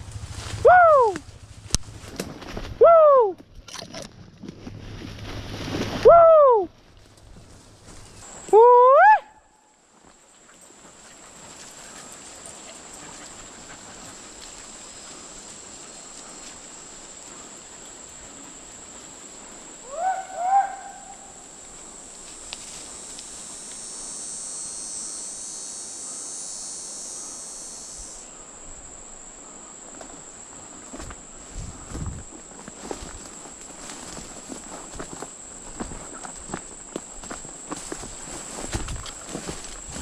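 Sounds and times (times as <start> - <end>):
dog yelping: 20.0 - 21.2.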